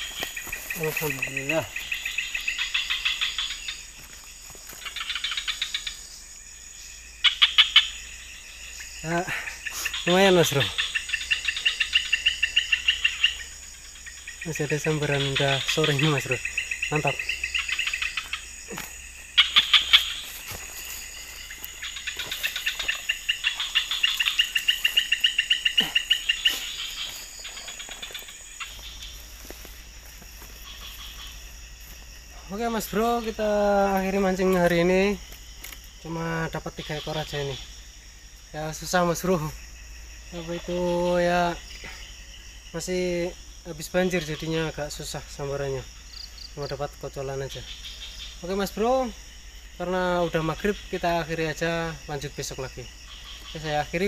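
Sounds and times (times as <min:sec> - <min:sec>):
insects droning and chirping: 0:00.0 - 0:54.0
loud sharp falling calls: 0:14.4 - 0:31.5.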